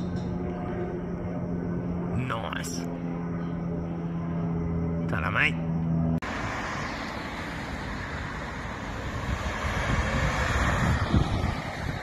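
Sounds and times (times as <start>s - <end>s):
car driving past: 6.2s - 12.0s
wind buffeting microphone: 8.7s - 12.0s.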